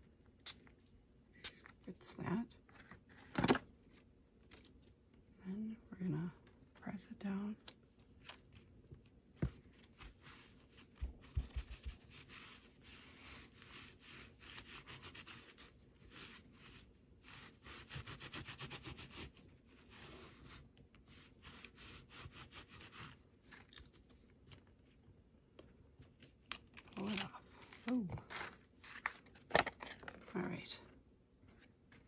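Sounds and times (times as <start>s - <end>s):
sponge patting and rubbing: 9.4s - 23.2s.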